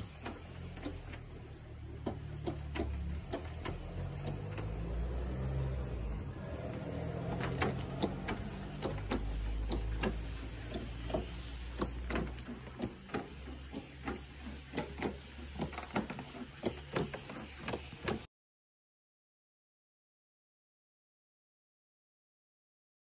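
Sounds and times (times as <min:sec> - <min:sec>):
sprayer pump whirring: 0:00.0 - 0:18.3
wand spraying on paving: 0:00.0 - 0:18.3.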